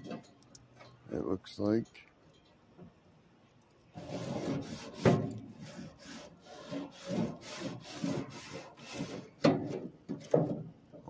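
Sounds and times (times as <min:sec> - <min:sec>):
grill brush scrubbing metal grates: 0:03.9 - 0:10.6.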